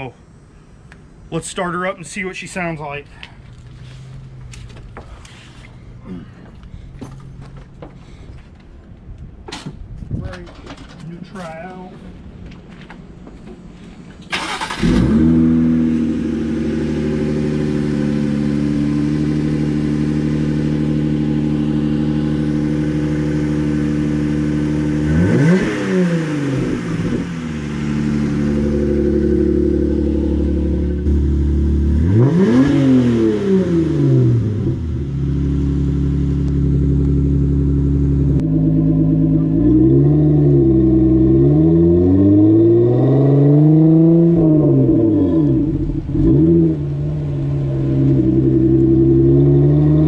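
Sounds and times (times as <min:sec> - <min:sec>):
engine starting and idling: 0:14.2 - 0:15.7
engine revving: 0:14.3 - 0:50.0.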